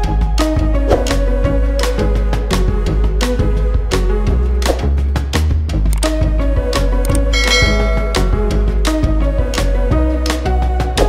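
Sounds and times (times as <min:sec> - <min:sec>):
deep bass: 0:00.0 - 0:10.9
sustained instrumental notes: 0:07.2 - 0:08.8.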